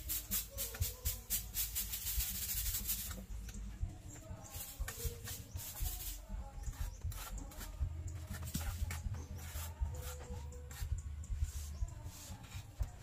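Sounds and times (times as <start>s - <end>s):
paintbrush scrubbing concrete: 4.5s - 13.0s.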